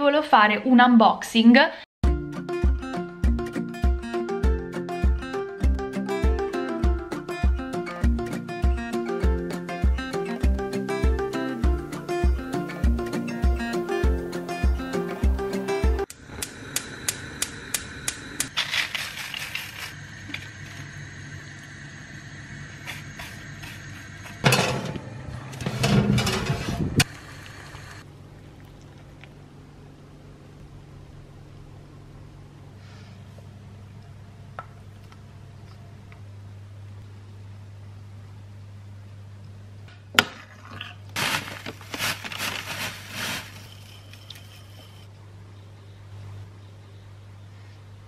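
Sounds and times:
low hum: 0:16.0 - 0:40.0
bag crinkling: 0:41.1 - 0:45.0
spoon scraping oats on paper: 0:41.2 - 0:45.0.

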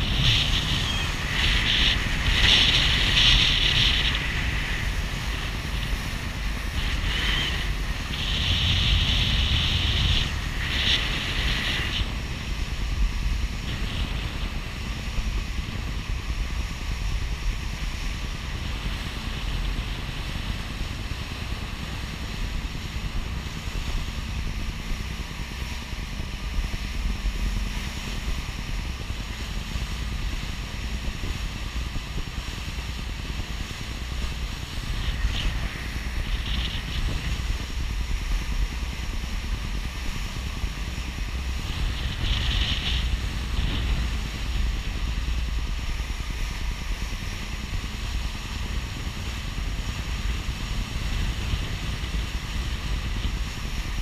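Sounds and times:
boat engine drone: 0:00.0 - 0:54.0
water rushing along hull: 0:00.0 - 0:54.0
wind on microphone: 0:00.0 - 0:54.0.

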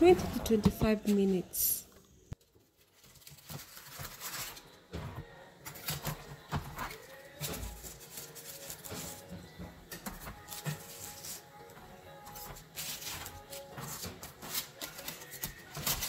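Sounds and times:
metal spatula scraping: 0:05.6 - 0:16.0.

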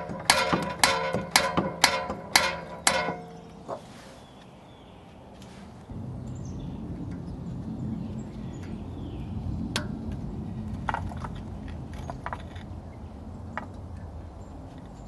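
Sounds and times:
steady low rumble: 0:05.8 - 0:14.5.

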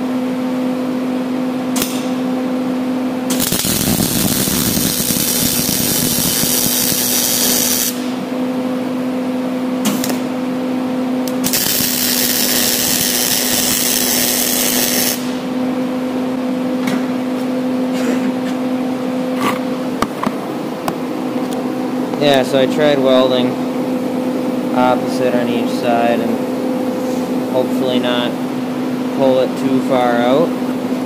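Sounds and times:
electrical hum: 0:00.0 - 0:31.0
welding arc crackling hiss: 0:03.3 - 0:08.2, 0:11.2 - 0:15.4.

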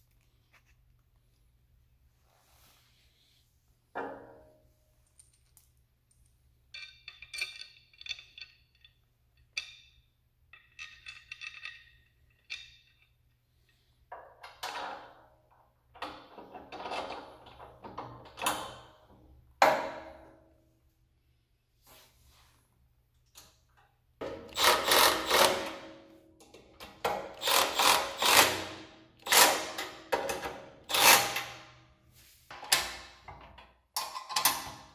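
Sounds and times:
metal bar clattering and scraping: 0:06.7 - 0:15.2.

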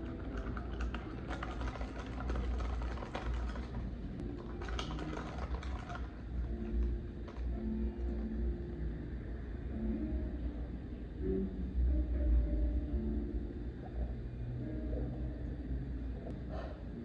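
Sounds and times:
ice cubes rattling in a cup: 0:00.0 - 0:07.5
low background hum: 0:00.0 - 0:17.0.

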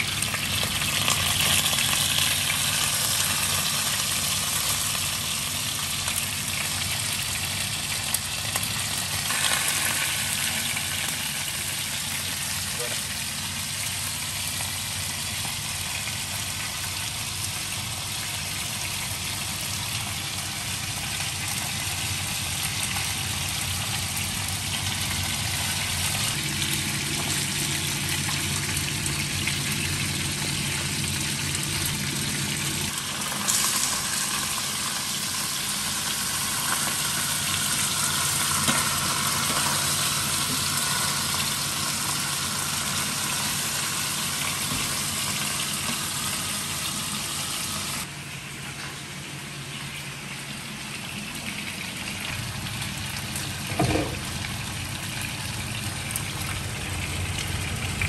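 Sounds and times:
fish sizzling in oil: 0:00.0 - 0:48.1, 0:49.2 - 0:58.0.

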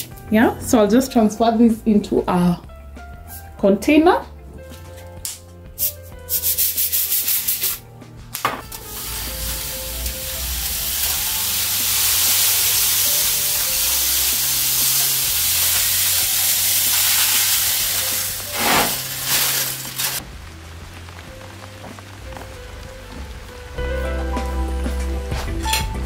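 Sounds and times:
soft background music: 0:00.0 - 0:26.0
sesame seeds pouring into jar: 0:16.6 - 0:20.2.

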